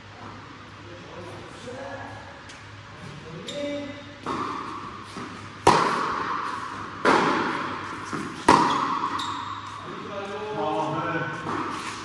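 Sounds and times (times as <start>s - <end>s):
tennis ball racket strikes: 4.2s - 9.3s.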